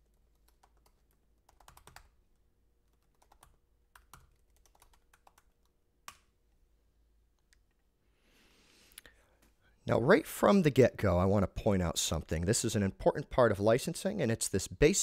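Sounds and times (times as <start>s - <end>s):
computer keyboard typing: 0.0s - 2.2s, 2.9s - 6.3s.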